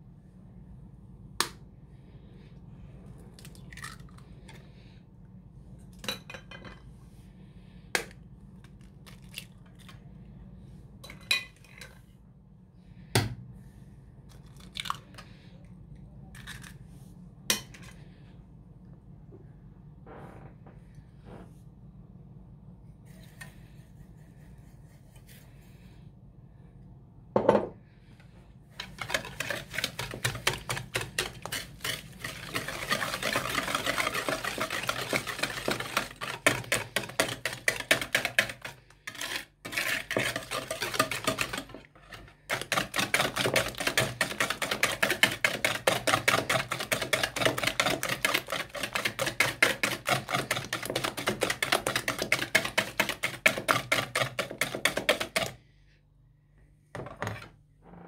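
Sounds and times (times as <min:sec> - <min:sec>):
whisk clattering in ceramic bowl: 0:28.8 - 0:55.6.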